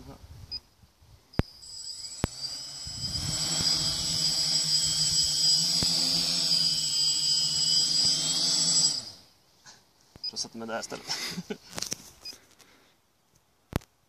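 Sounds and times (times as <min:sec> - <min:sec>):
quadcopter motors whining: 0:01.4 - 0:09.4.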